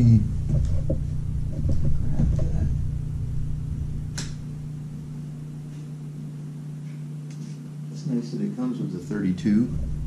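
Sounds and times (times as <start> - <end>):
steady low hum: 0.0 - 10.0
sharp click: 4.1 - 4.4.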